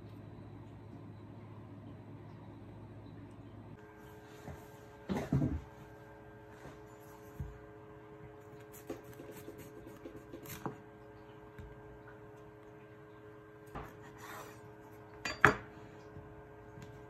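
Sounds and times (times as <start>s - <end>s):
knife cutting gourd: 8.7s - 10.8s.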